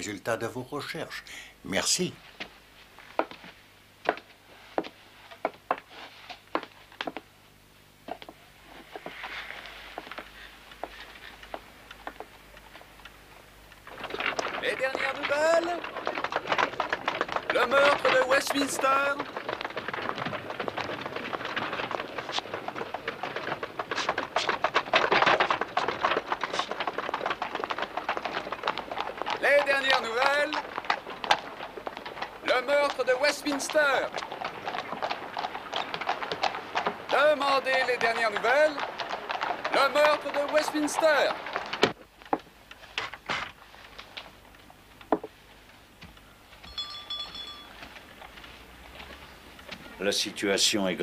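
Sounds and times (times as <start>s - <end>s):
hooves clip-clopping: 2.2s - 7.3s, 8.0s - 51.0s
wheels clattering over stones: 10.0s - 45.3s
footsteps on wooden floor: 46.0s - 49.9s
thin ringing tone: 46.6s - 47.8s.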